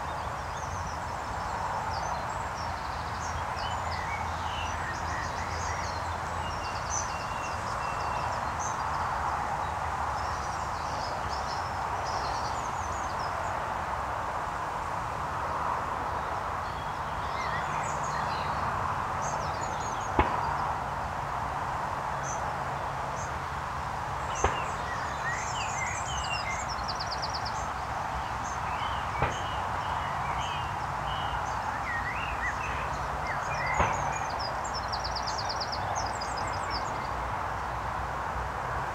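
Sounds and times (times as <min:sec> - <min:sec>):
steady background noise: 0:00.0 - 0:38.9
birds chirping and trilling: 0:24.3 - 0:37.2.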